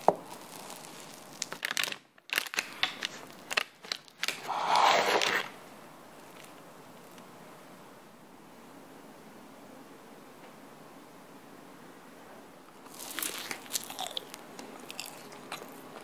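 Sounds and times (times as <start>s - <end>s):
biscuit crunching: 0.0s - 5.6s, 12.8s - 16.0s
knife scraping on paper: 4.4s - 5.5s.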